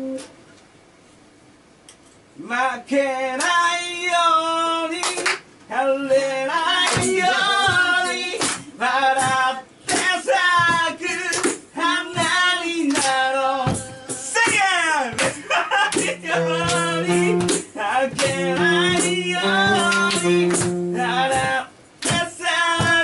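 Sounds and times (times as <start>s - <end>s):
sharp slaps or claps: 5.0s - 5.4s, 6.8s - 11.6s, 12.2s - 13.3s, 14.4s - 20.8s, 21.4s - 23.0s
person singing with vibrato: 6.1s - 9.6s, 15.4s - 23.0s.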